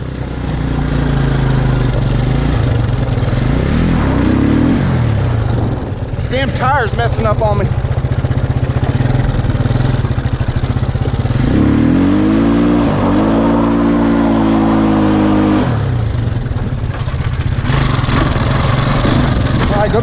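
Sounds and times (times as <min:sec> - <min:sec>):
go-kart engine revving: 0:00.0 - 0:20.0.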